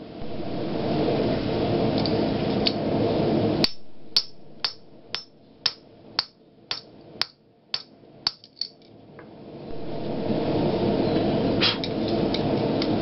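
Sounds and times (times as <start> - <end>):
steady rushing noise: 0.0 - 6.0, 9.4 - 13.0
hammer striking metal die: 3.6 - 8.4.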